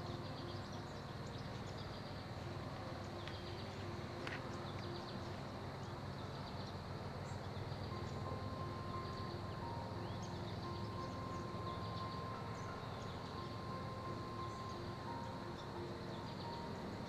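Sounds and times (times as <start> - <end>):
bird and insect chirps: 0.0 - 17.0
thin steady tone: 0.0 - 17.0.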